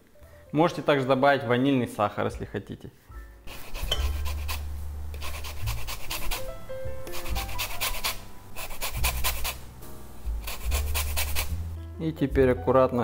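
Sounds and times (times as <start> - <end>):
zester grating lemon rind: 3.5 - 9.7, 10.3 - 11.6.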